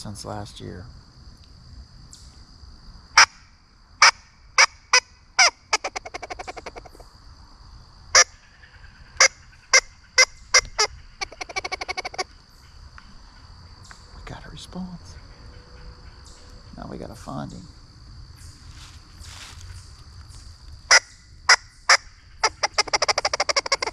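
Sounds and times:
squirrel call barks: 4.0 - 7.0, 8.2 - 12.8, 20.9 - 23.9
squirrel call rattling chatter: 4.6 - 7.0, 8.2 - 17.7, 20.9 - 23.9.

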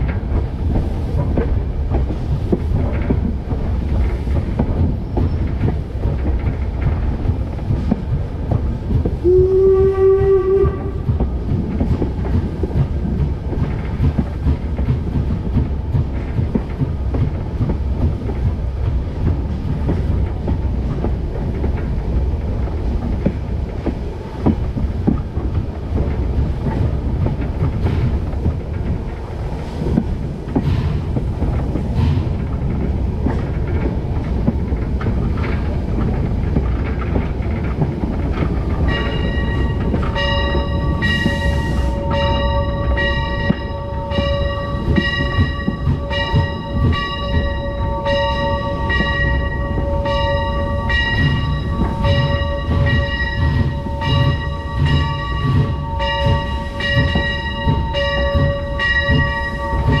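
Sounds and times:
train wheels rumbling on rails: 0.0 - 60.0
steam hiss: 22.8 - 36.9, 38.8 - 60.0
locomotive bell ringing: 38.8 - 60.0.

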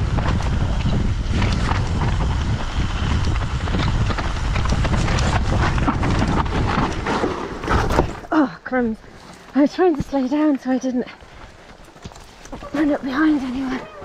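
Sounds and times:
wind buffeting microphone: 0.0 - 8.2
bike rattling and clattering: 0.0 - 8.3
bike tyres rumbling: 0.0 - 8.5.

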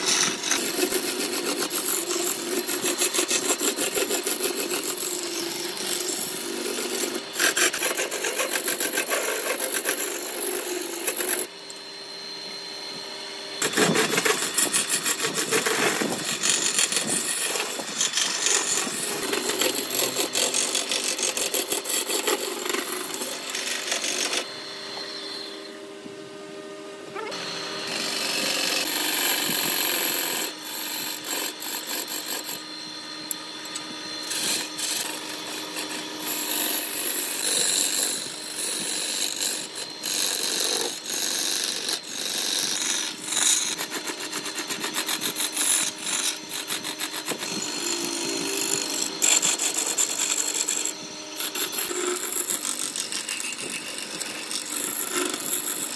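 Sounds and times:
gouge scraping spinning wood: 0.0 - 25.6, 27.2 - 55.9
lathe running hum: 0.0 - 55.9.

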